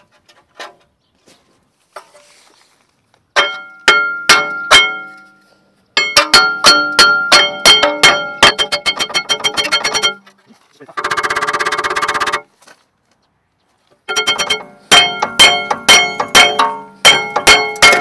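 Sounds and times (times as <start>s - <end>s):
hammer striking ringing metal disc: 3.4s - 5.3s, 6.0s - 10.2s, 14.1s - 18.0s.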